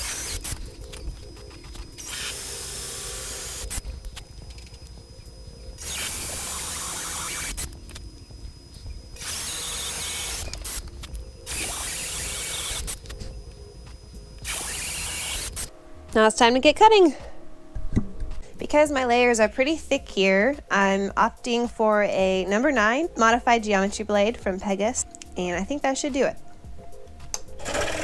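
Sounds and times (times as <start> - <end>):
cordless drill boring through wood: 0.0 - 0.6, 2.0 - 3.8, 5.8 - 7.7, 9.2 - 10.8, 11.5 - 12.9, 14.4 - 15.7.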